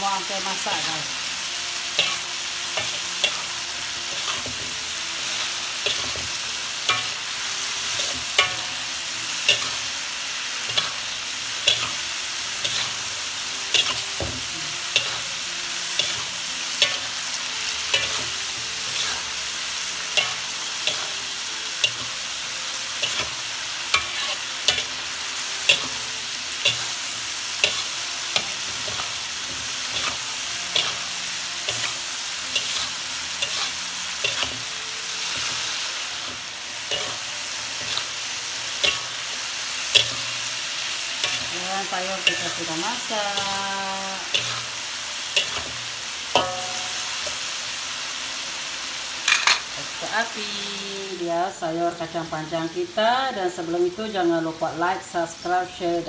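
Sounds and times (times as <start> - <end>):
beans sizzling in a wok: 0.0 - 56.0
metal spatula scraping and clacking: 2.0 - 7.2, 7.9 - 8.7, 9.4 - 9.9, 12.6 - 13.0, 13.7 - 15.3, 17.9 - 19.3, 23.0 - 25.0, 25.7 - 26.0, 27.6 - 34.7, 39.9 - 40.4, 42.2 - 43.5, 45.4 - 47.4, 49.2 - 49.7.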